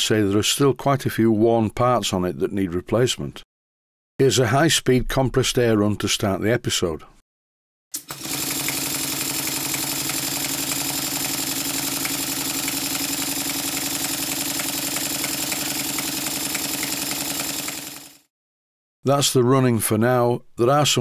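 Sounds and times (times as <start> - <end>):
model steam engine beating: 9.4 - 18.0.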